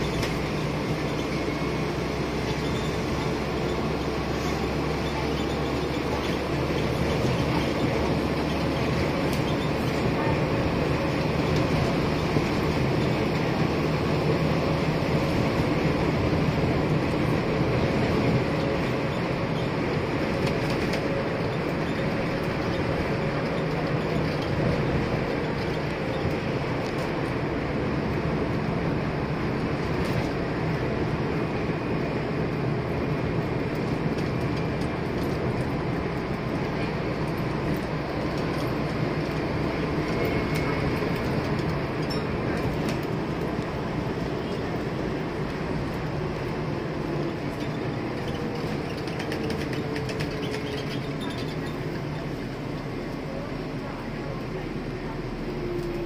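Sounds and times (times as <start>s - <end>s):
bus diesel engine drone: 0.0s - 56.0s
road noise: 0.0s - 56.0s.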